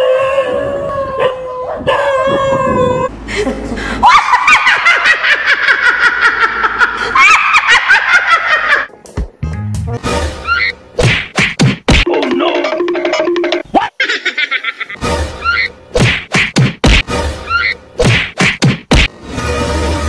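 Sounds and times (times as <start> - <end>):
woman laughing hysterically: 3.3 - 8.9, 13.8 - 15.7.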